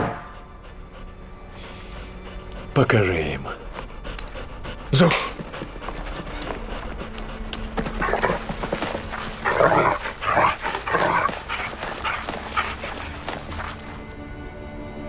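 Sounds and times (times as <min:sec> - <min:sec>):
dog growling and grunting: 0:04.0 - 0:14.0.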